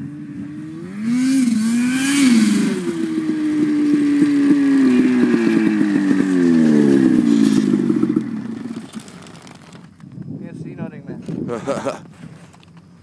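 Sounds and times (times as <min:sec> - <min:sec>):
snowmobile engine revving: 0:00.0 - 0:09.2.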